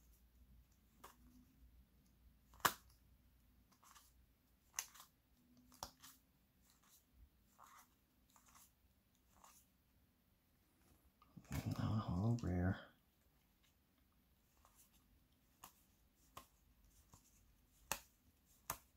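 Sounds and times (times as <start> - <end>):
cards sliding and snapping: 0.6 - 9.7, 14.5 - 18.9.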